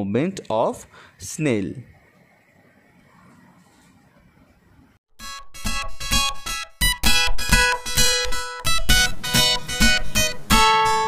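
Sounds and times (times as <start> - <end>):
acoustic guitar music: 5.5 - 11.0.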